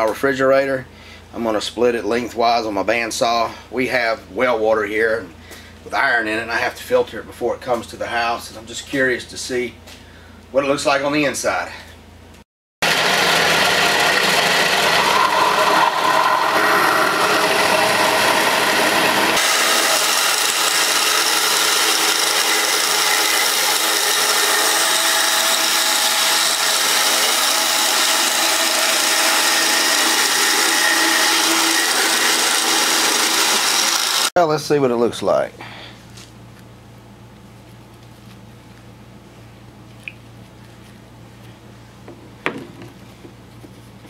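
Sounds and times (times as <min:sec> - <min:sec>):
bandsaw cutting plastic: 0:12.8 - 0:34.3.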